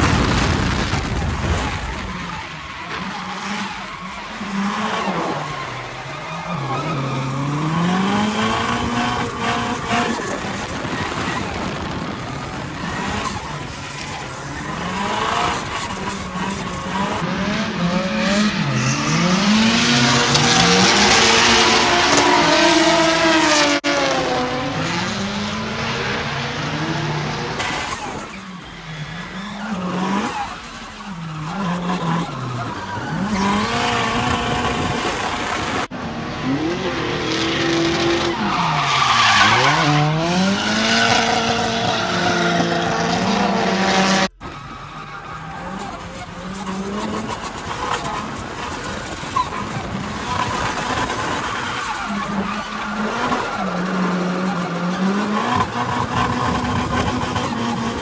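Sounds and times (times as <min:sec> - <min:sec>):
car engines revving: 0:00.0 - 0:58.0
tyres squealing: 0:01.5 - 0:17.2, 0:27.6 - 0:35.9, 0:44.4 - 0:58.0.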